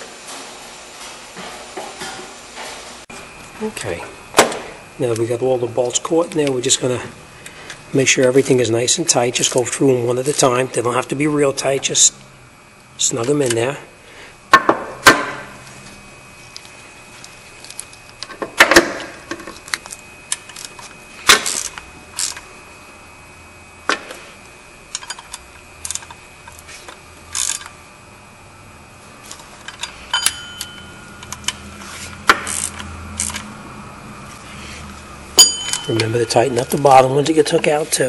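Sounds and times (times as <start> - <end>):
ratchet wrench clicking: 27.3 - 27.7, 32.5 - 33.4.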